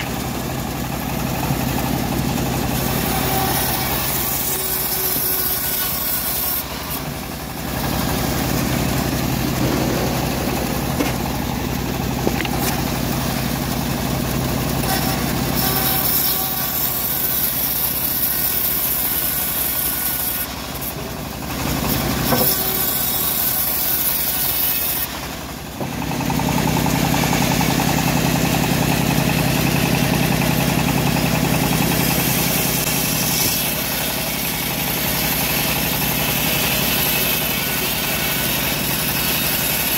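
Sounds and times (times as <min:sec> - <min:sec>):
bandsaw mill cutting wood: 0:00.0 - 0:39.9.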